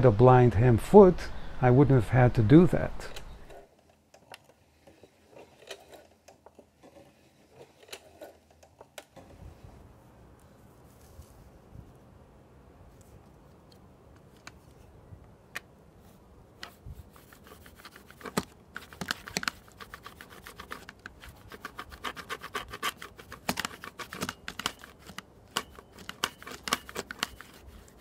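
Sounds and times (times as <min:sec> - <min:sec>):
rotary cutter scratching leather: 0:03.4 - 0:08.9, 0:17.0 - 0:28.0.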